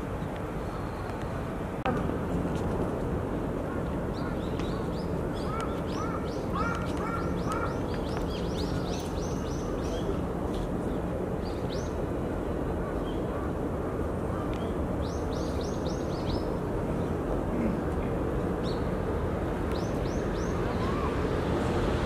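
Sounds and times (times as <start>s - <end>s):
lower repeated bird calls: 4.1s - 10.2s
birds chirping: 4.1s - 10.3s.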